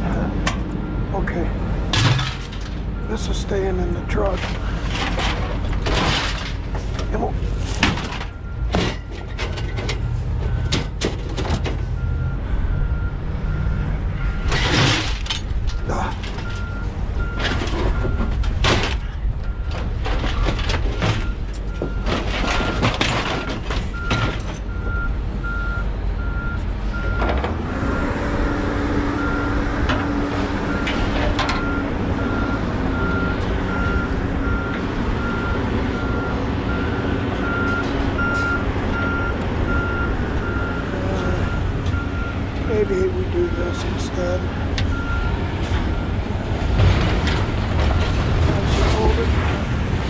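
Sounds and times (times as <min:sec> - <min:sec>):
scrap metal clanking: 0:01.9 - 0:02.9, 0:04.1 - 0:11.9, 0:14.4 - 0:24.7
reversing alarm beeping: 0:08.2 - 0:11.0, 0:20.9 - 0:29.6, 0:30.6 - 0:46.8.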